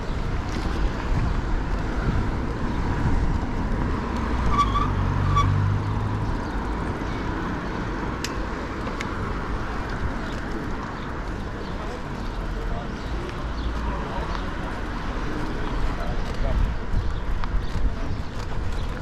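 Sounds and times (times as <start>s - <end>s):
wind and road noise: 0.0s - 19.0s
passing vehicle engine: 1.8s - 6.9s.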